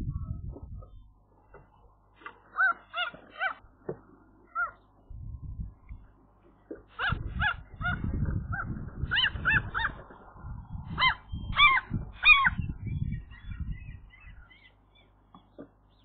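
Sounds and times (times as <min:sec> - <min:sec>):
gull honking calls: 0:02.2 - 0:03.6, 0:04.5 - 0:04.9, 0:06.9 - 0:12.6.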